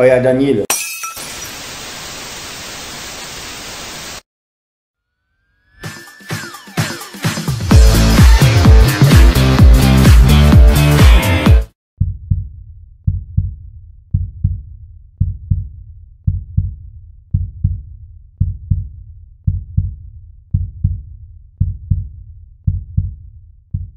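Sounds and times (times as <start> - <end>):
heartbeat thumps: 12.0 - 23.9.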